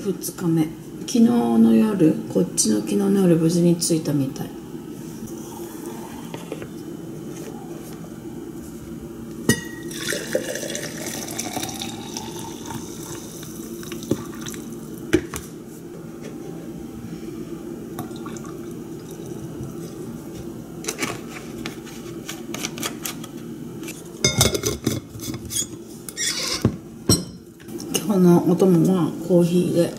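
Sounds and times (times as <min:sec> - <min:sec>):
coffee pouring into tumbler: 0:09.8 - 0:14.9, 0:18.0 - 0:20.1
milk pouring: 0:09.8 - 0:15.0, 0:18.0 - 0:20.1.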